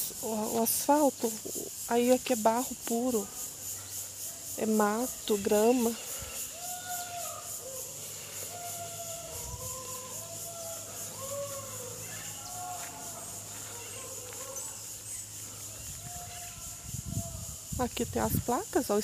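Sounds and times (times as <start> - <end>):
pulsing insect drone: 0.0 - 19.0.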